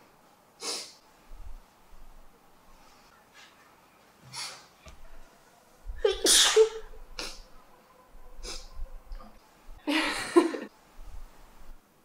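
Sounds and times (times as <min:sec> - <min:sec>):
woman sneezing: 0:06.0 - 0:07.4.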